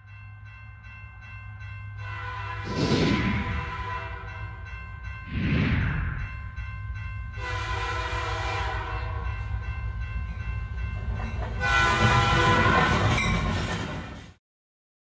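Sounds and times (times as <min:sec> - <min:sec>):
steady low rumble: 0:02.7 - 0:07.4
horn-like chords: 0:03.4 - 0:04.4, 0:07.4 - 0:09.3, 0:11.6 - 0:13.1.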